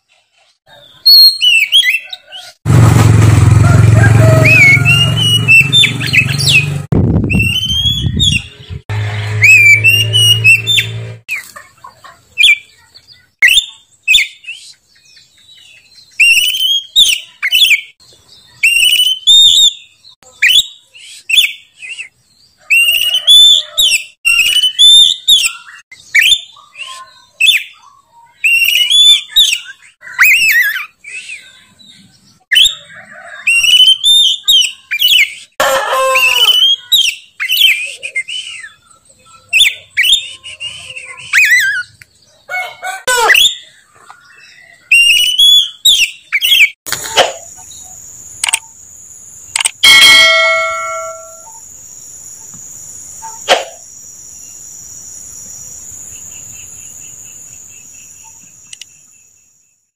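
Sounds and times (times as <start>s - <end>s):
songbird whistling: 1.1s - 2.2s, 4.2s - 8.6s, 9.4s - 10.9s, 13.4s - 14.8s, 16.1s - 27.8s, 28.4s - 31.5s, 32.5s - 35.6s, 36.2s - 42.0s, 43.2s - 46.8s
harsh low bird call: 3.3s - 11.1s.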